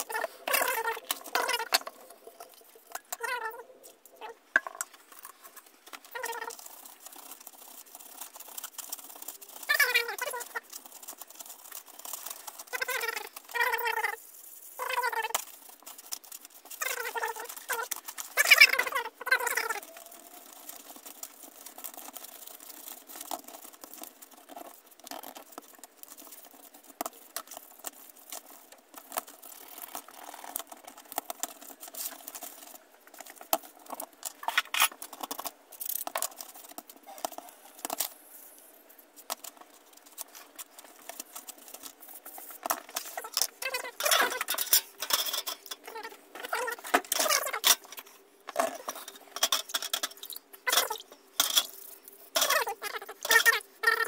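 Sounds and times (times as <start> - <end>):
toothbrush scrubbing gears: 0.0 - 37.1, 40.1 - 54.0
small metal parts clinking: 39.3 - 54.0.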